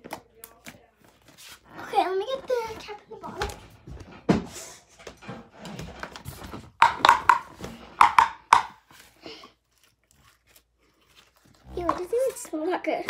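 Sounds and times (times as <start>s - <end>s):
plastic containers knocking on wood floor: 5.1s - 8.9s.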